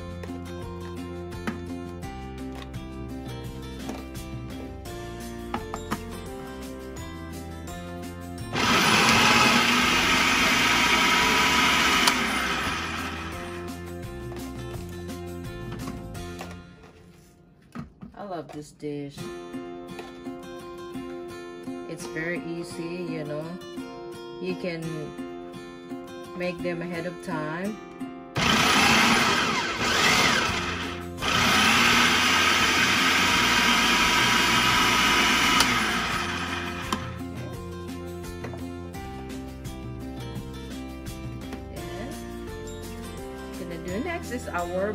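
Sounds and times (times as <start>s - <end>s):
food processor motor running: 8.5s - 13.6s, 28.4s - 37.2s.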